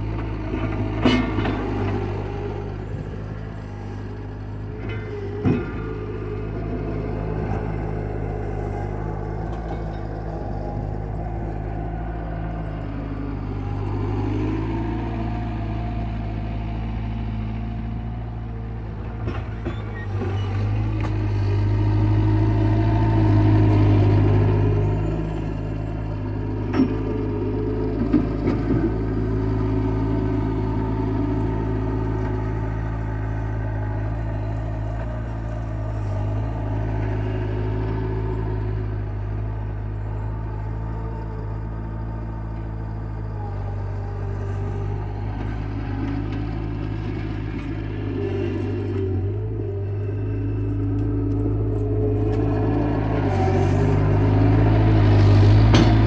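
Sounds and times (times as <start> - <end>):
loader engine running: 0.0 - 56.0.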